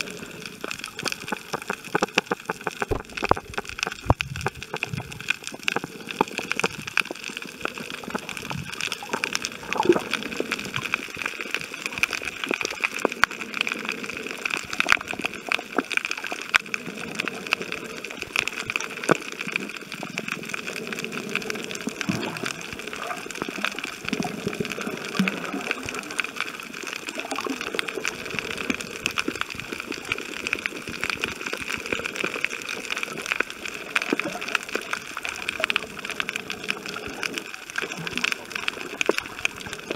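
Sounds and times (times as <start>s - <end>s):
muffled gurgling and sloshing: 0.0s - 39.9s
underwater hiss with clicks: 0.0s - 39.9s.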